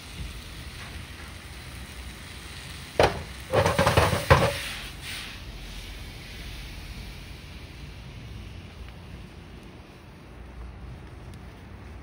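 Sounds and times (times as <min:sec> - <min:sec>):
noodles sizzling in a frying pan: 0:00.0 - 0:12.0
pan knocking against burner grate: 0:03.0 - 0:04.6.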